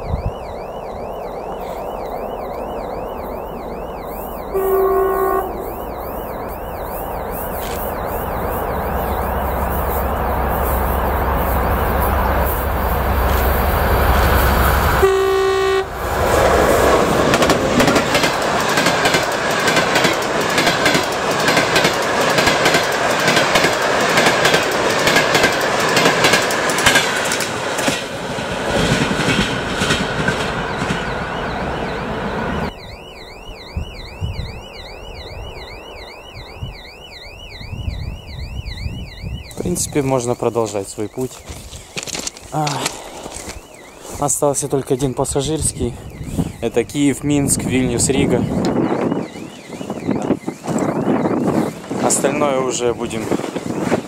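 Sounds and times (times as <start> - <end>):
high repeating warble: 0.0 - 15.2, 30.6 - 41.4
diesel locomotive engine rumble: 1.5 - 32.7, 37.6 - 54.0
train horn blast: 4.5 - 5.9, 14.2 - 17.1
train wheels clacking over rail joints: 16.9 - 31.2.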